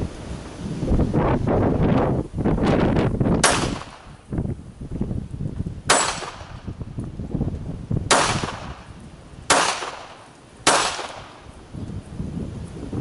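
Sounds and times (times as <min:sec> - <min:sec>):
wind buffeting microphone: 0:00.0 - 0:13.0
pistol shots: 0:03.4 - 0:04.1, 0:05.9 - 0:06.7, 0:08.1 - 0:08.9, 0:09.5 - 0:11.4.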